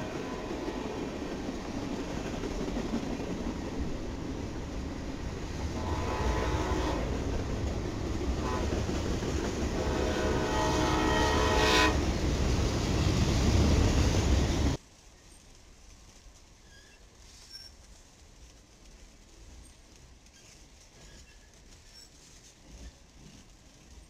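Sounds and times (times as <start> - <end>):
freight train wheels rumbling: 0.0 - 24.0
train horn blasts: 5.7 - 7.4, 8.3 - 8.9, 9.7 - 12.1.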